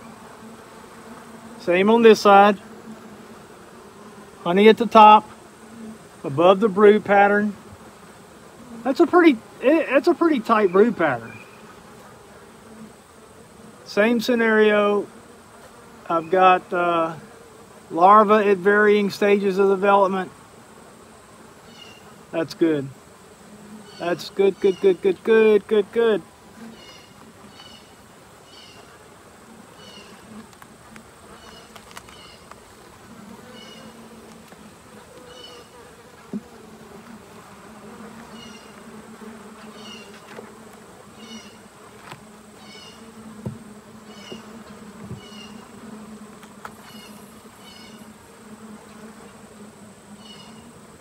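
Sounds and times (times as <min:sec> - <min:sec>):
bees buzzing: 0:00.0 - 0:51.0
wooden knocks of hive frames: 0:29.9 - 0:49.5.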